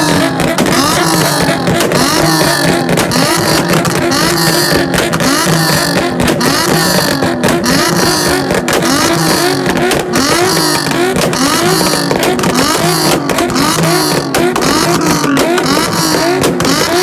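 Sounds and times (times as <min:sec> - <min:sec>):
car engines revving on limiter: 0:00.0 - 0:17.0
exhaust popping and cracking: 0:00.0 - 0:17.0.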